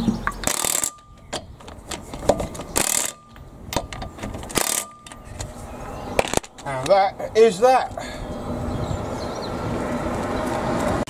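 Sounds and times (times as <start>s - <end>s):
ratchet wrench clicking: 0.4s - 1.0s, 2.8s - 3.4s, 4.5s - 5.2s.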